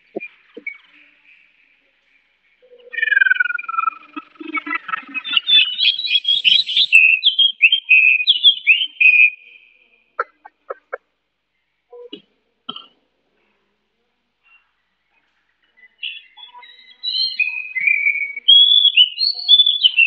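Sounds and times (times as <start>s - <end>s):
bird singing whistled phrases: 2.9s - 4.0s, 5.1s - 9.8s, 16.0s - 20.0s.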